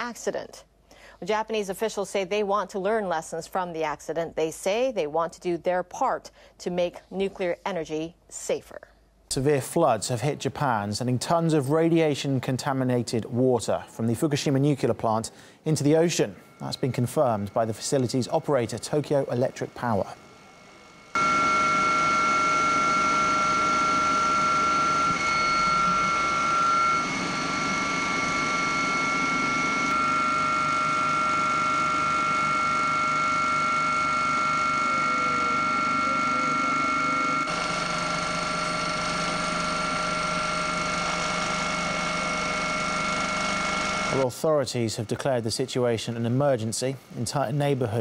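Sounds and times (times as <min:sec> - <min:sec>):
helicopter turbine and rotor: 0:15.9 - 0:44.2.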